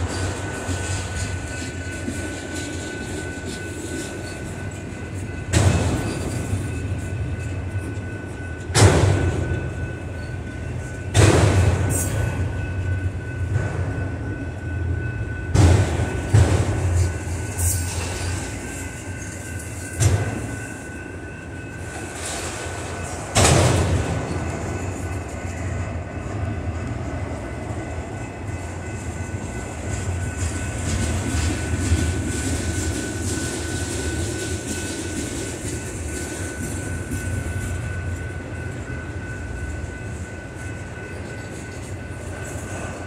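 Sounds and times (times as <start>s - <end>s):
freight train rumbling past: 0.0s - 43.0s
train wheels clanking: 0.0s - 43.0s.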